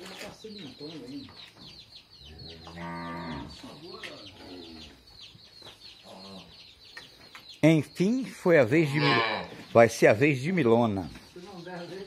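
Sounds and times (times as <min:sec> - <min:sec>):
chicks peeping: 0:00.0 - 0:12.0
cow mooing: 0:02.3 - 0:03.6, 0:08.9 - 0:09.5.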